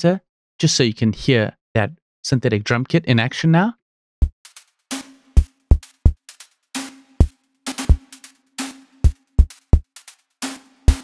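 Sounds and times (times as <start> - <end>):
hi-hat ticks: 4.4 - 11.0.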